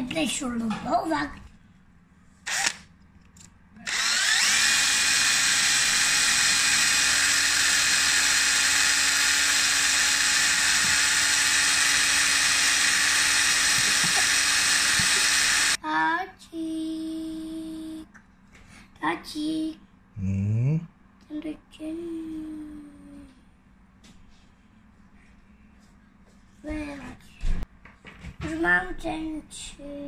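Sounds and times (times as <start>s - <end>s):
cordless drill running: 2.4s - 2.8s, 3.8s - 15.8s.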